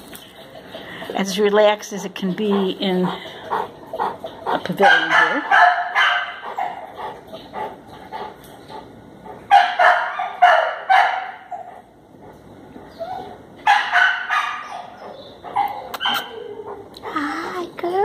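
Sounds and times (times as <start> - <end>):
dog barking: 4.8 - 7.7, 9.5 - 11.8, 13.6 - 16.9.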